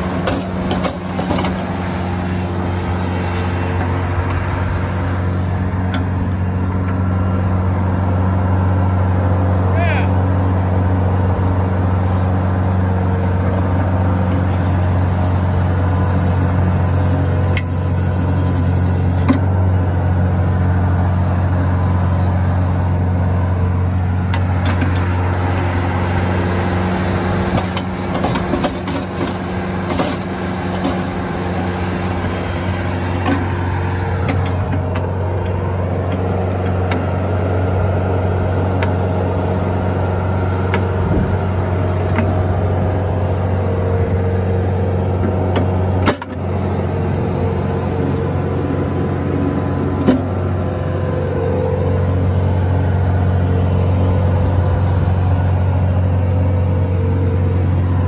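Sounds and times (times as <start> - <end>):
diesel engine under load: 0.0 - 58.0
auger drilling into ground: 24.3 - 37.2.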